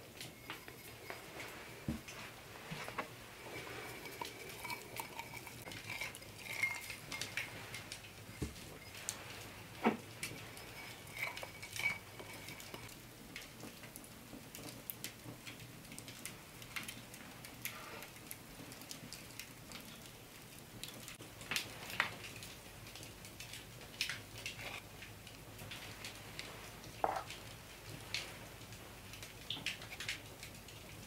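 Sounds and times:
ceramic cups clinking: 0.2 - 12.9, 27.0 - 27.3.

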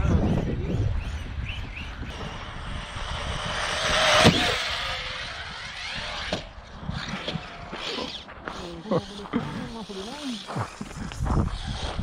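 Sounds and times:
rc car motor whine: 1.1 - 12.0.

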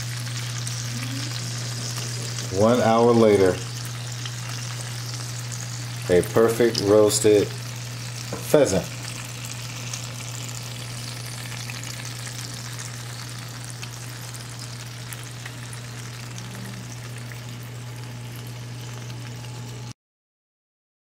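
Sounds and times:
butter sizzling and crackling: 0.0 - 19.9
steady low hum: 0.0 - 19.9.

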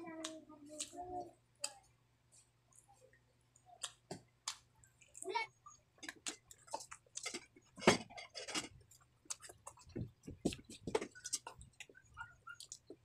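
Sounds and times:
person chewing with mouth smacks: 6.1 - 7.8, 8.7 - 13.0.

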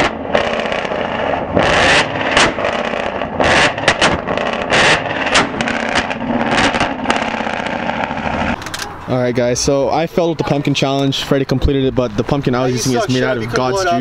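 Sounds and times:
exhaust blasting pumpkin apart: 0.0 - 8.6
exhaust pops and bangs: 0.0 - 8.6
car engine at high revs: 0.0 - 9.0.

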